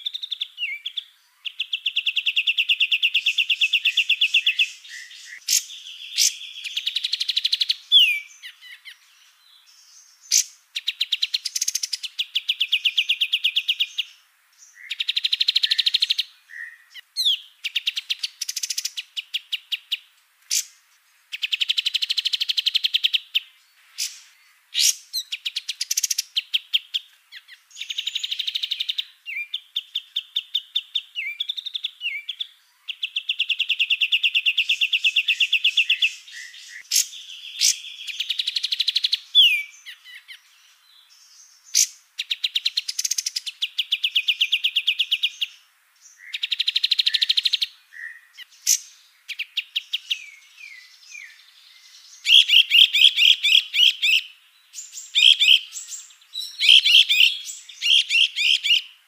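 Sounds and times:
songbirds trilling and chirping: 0.0s - 59.0s.

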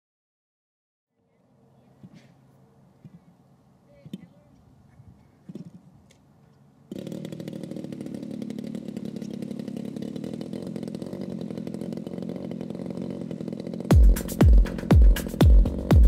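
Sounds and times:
model plane engine idling: 6.6s - 15.9s.

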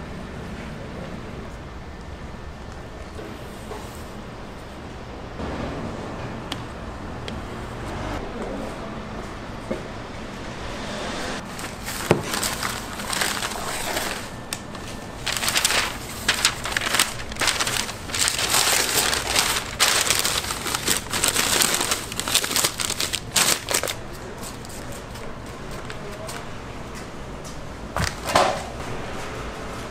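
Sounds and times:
newspaper rustling and crinkling: 11.4s - 24.9s.

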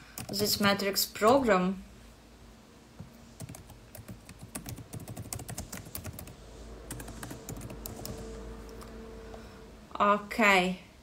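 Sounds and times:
typing on a keyboard: 3.4s - 6.3s, 6.9s - 8.2s.

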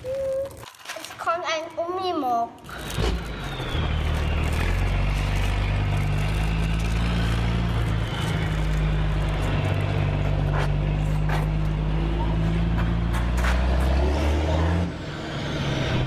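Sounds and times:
truck engine running: 2.7s - 15.3s.

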